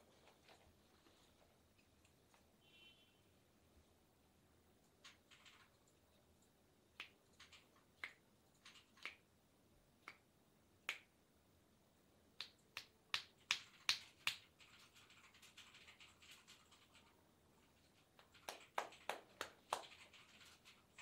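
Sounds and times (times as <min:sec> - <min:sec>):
sharp finger snaps: 0:07.0 - 0:07.2, 0:08.0 - 0:08.2, 0:08.9 - 0:09.2, 0:10.0 - 0:11.2, 0:12.4 - 0:14.4.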